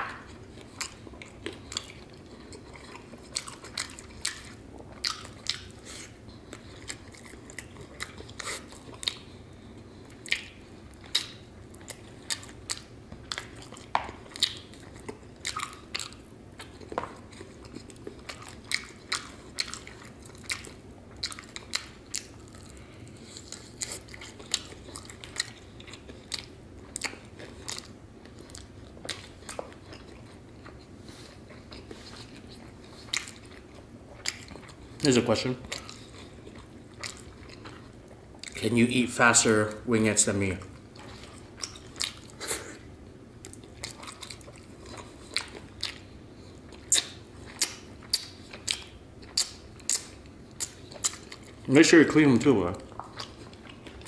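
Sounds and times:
biting and chewing: 0.0 - 38.9, 40.2 - 54.0
mouth clicks and smacks: 46.8 - 51.4.

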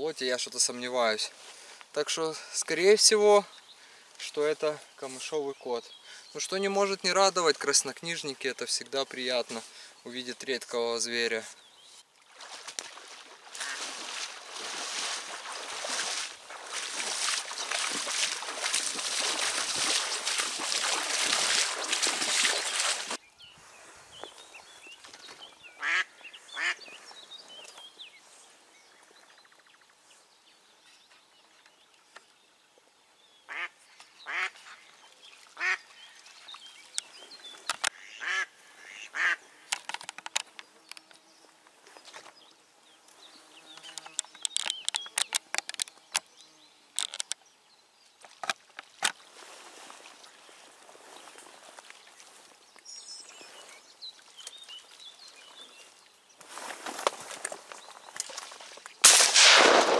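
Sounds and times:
duck quacking: 25.8 - 26.8, 37.9 - 39.4.

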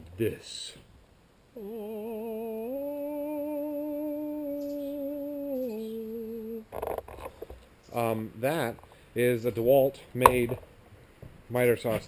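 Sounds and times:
man humming: 1.6 - 6.8.

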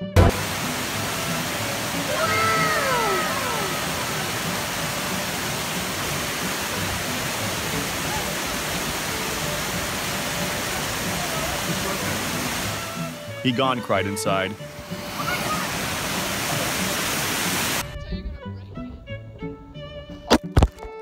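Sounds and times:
waterfall rushing: 0.2 - 17.9
high voice long cry: 2.0 - 4.2
brief thump: 20.3 - 20.9.

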